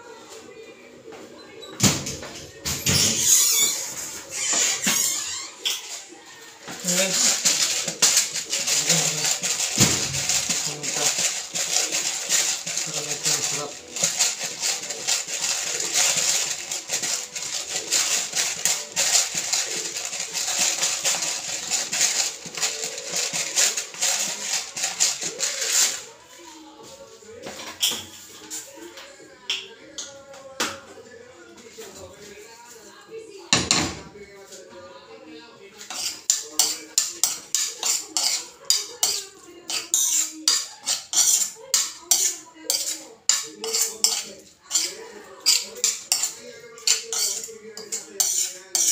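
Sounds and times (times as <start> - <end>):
utensil scraping a frying pan: 2.9 - 6.1, 6.7 - 26.1, 35.8 - 48.9
spice mill grinding: 6.8 - 26.1, 35.9 - 48.9.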